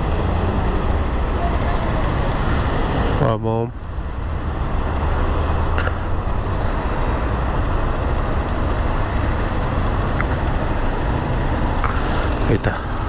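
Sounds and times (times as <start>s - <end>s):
motorcycle engine running: 0.0s - 13.0s
street traffic rumble: 0.0s - 13.0s.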